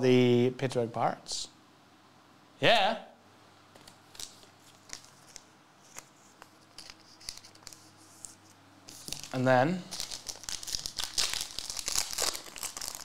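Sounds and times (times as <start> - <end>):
cards and wrapping rustling: 3.8 - 13.0.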